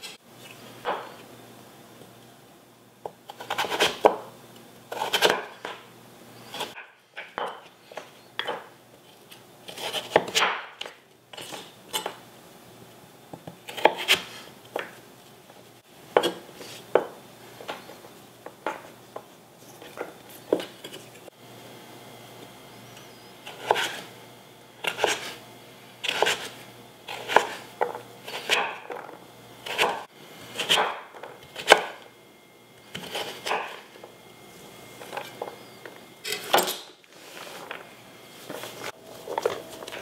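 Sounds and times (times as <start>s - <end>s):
knife slicing squash: 3.3s - 4.2s, 4.9s - 5.7s, 9.6s - 12.1s, 13.6s - 14.5s, 23.5s - 24.1s, 24.8s - 25.4s, 26.0s - 29.0s, 29.6s - 32.0s, 32.8s - 34.0s.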